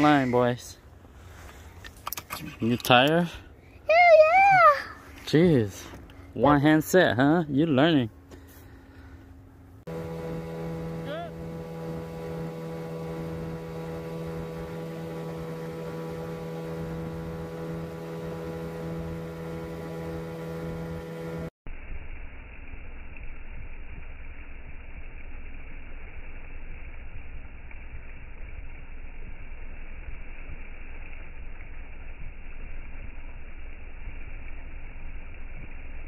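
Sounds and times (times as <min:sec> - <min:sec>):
dull rushing noise: 0:03.9 - 0:36.0
boat motor running: 0:05.1 - 0:21.5.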